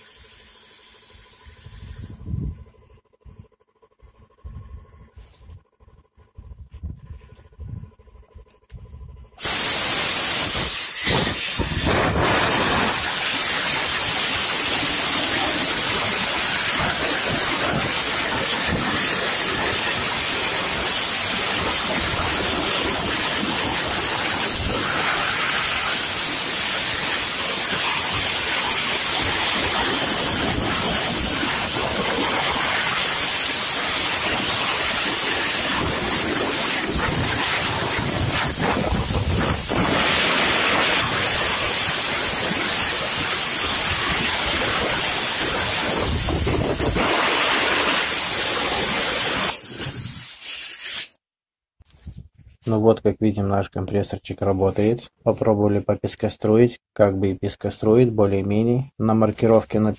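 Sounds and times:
sandblasting gun hissing: 0:00.0 - 0:02.3, 0:09.4 - 0:51.2.

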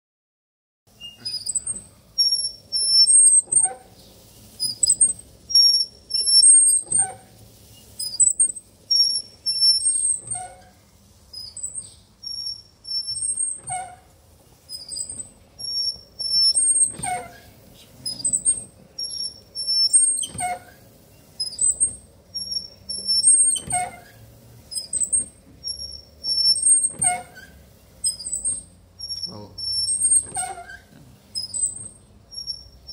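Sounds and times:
wiper blades squeaking on glass: 0:00.9 - 0:32.9.

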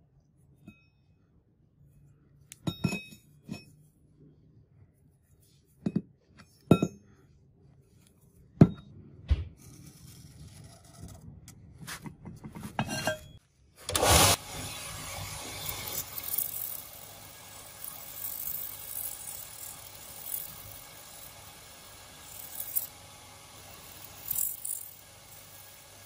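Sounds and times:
steel axe head clinking on concrete: 0:02.5 - 0:03.7
belt sander rushing: 0:13.9 - 0:26.0.

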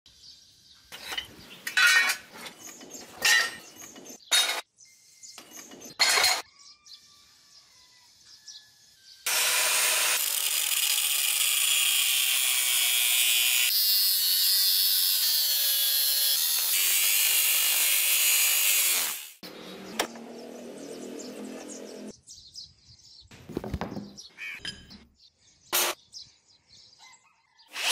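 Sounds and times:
angle grinder cutting steel: 0:09.3 - 0:19.6, 0:25.8 - 0:26.0.

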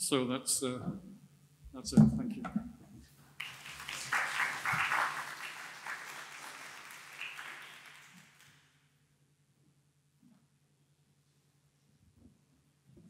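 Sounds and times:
audience applauding: 0:03.4 - 0:08.6.

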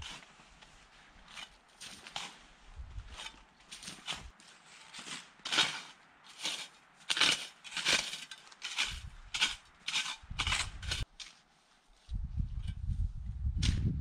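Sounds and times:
snow shovels crunching and scraping: 0:00.0 - 0:12.1.

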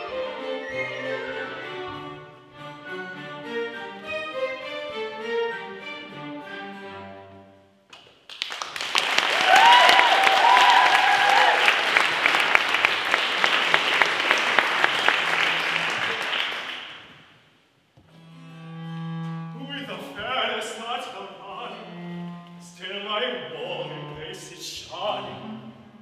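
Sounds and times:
string ensemble playing: 0:00.0 - 0:07.8, 0:11.8 - 0:16.7, 0:18.1 - 0:26.0
audience applauding: 0:08.3 - 0:17.1.

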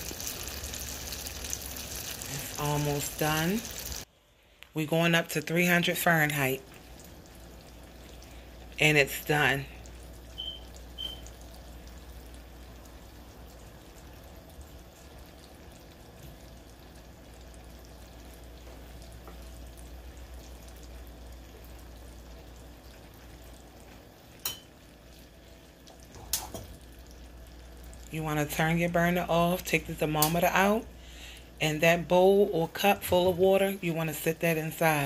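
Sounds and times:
syrup boiling in a saucepan: 0:00.0 - 0:04.1, 0:05.6 - 0:32.9
short high beeps: 0:10.4 - 0:11.2.

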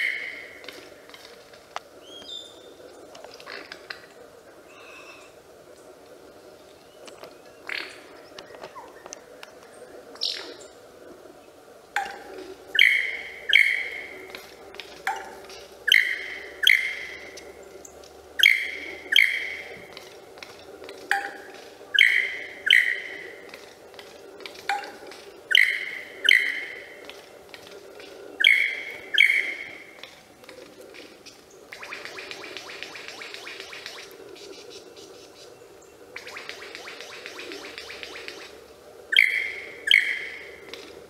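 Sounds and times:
lyrebird ringing calls: 0:12.0 - 0:17.6, 0:18.4 - 0:30.1, 0:36.1 - 0:40.9.

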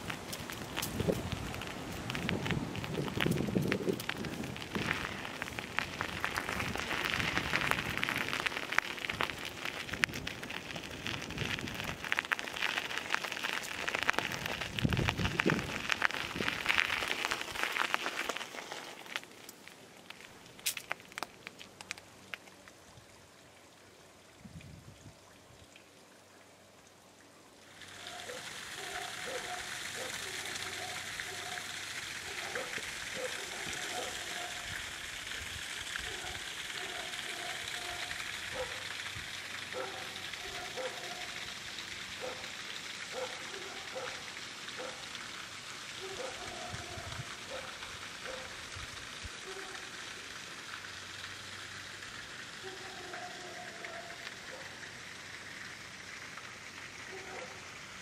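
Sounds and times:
footsteps on gravel: 0:00.0 - 0:21.7
running water: 0:00.0 - 0:58.0
faint clicks: 0:17.8 - 0:22.8.

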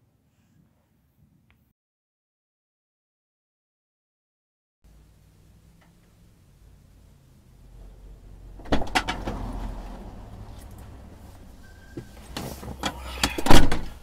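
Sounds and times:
outdoor noise: 0:04.8 - 0:14.0
person climbing into car seat: 0:11.9 - 0:13.9.

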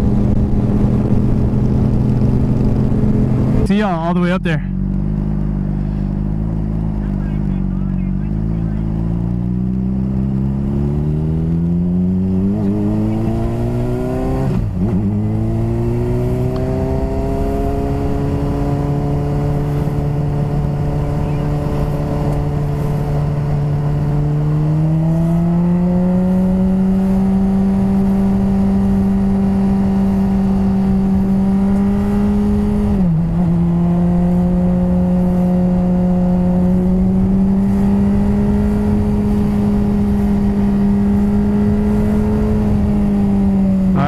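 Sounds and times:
wind rush: 0:00.0 - 0:04.1
motorcycle engine at speed: 0:00.0 - 0:44.0.

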